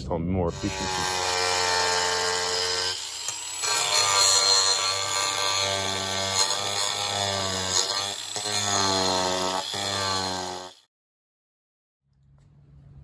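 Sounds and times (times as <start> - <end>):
angle grinder grinding plastic: 0.5 - 10.8.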